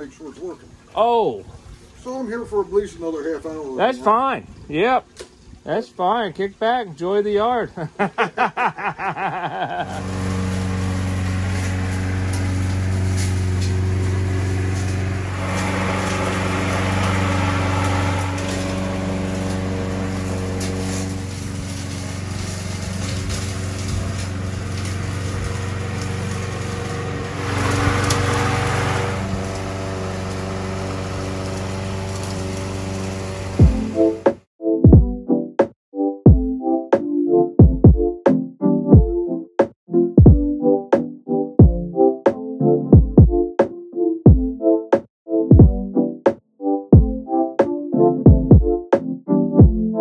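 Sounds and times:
lawn mower running: 0:09.1 - 0:34.5.

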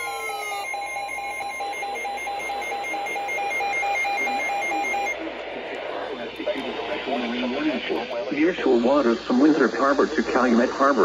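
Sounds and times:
falling electronic tones: 0:00.0 - 0:05.2
rapid pulsing electronic beeps: 0:00.5 - 0:05.3
radio hiss: 0:04.7 - 0:11.0.

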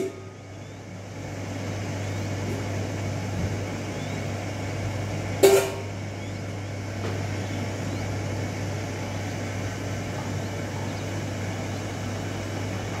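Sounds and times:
steady low hum: 0:00.0 - 0:13.0
quail chicks chirping: 0:00.4 - 0:01.0, 0:01.8 - 0:02.5, 0:03.8 - 0:04.4, 0:06.1 - 0:06.6, 0:07.3 - 0:08.2, 0:09.0 - 0:12.2.

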